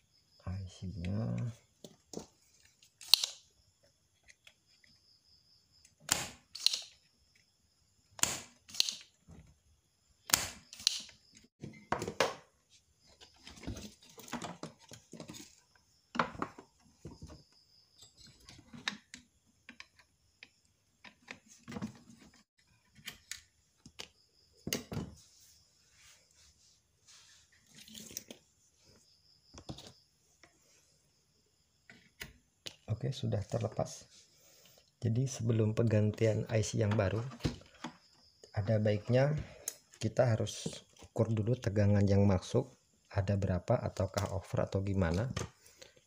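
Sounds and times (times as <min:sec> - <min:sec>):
sharp snaps and clicks: 0:03.0 - 0:03.4, 0:06.1 - 0:07.0, 0:08.2 - 0:09.1, 0:10.3 - 0:11.4.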